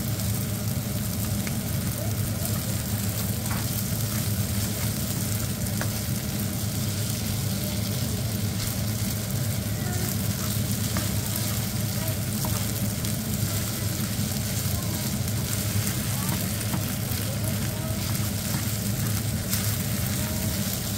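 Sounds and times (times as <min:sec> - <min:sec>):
rice sizzling in a frying pan: 0:00.0 - 0:20.9
steady low hum: 0:00.0 - 0:20.9
spatula stirring: 0:01.3 - 0:20.9
spatula tapping pan: 0:05.6 - 0:06.1, 0:10.1 - 0:14.0, 0:14.6 - 0:20.9.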